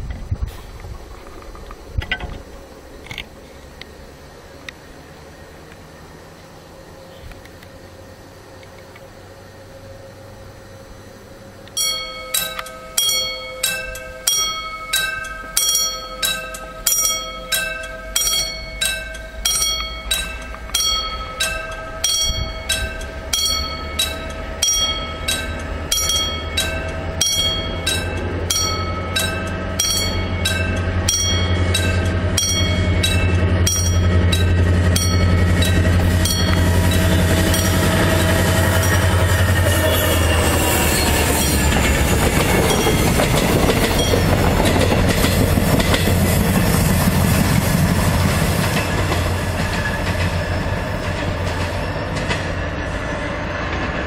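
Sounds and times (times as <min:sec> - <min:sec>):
diesel locomotive engine: 0:00.0 - 0:54.0
train wheels on rails: 0:00.0 - 0:54.0
level crossing bell ringing: 0:11.8 - 0:38.0.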